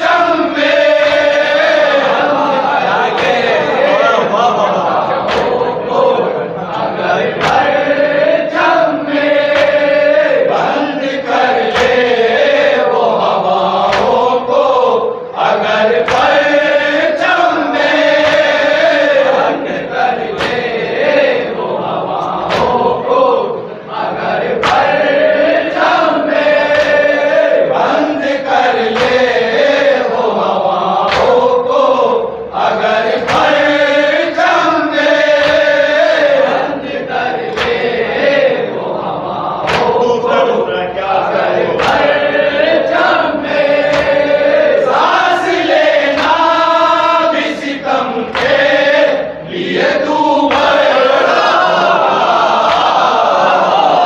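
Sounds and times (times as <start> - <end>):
men chanting in unison: 0.0 - 54.0
chest-beating slaps: 2.9 - 3.8, 5.0 - 5.8, 6.7 - 7.9, 8.5 - 10.2, 11.2 - 14.6, 15.4 - 16.6, 17.2 - 21.0, 22.1 - 23.1, 24.4 - 27.3, 28.7 - 29.6, 31.0 - 31.8, 33.1 - 36.6, 37.4 - 38.3, 39.6 - 40.4, 41.7 - 49.1, 50.5 - 51.3, 52.6 - 53.1.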